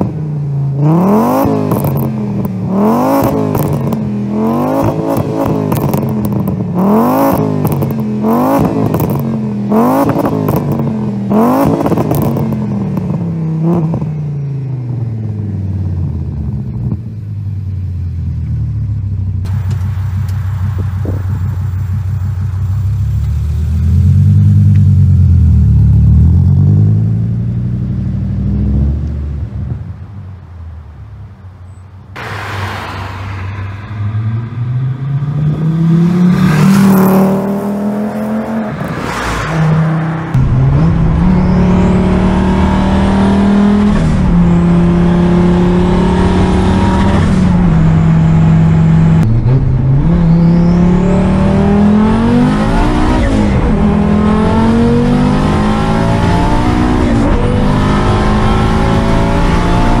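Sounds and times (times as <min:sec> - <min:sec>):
car engine at high revs: 0:00.0 - 0:30.1, 0:32.2 - 1:00.0
car accelerating past: 0:32.2 - 1:00.0.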